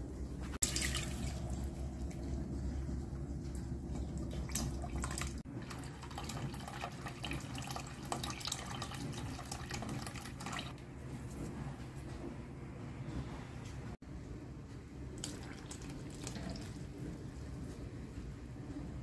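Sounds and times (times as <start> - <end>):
liquid pouring into metal pot: 0.5 - 2.6, 3.5 - 10.7.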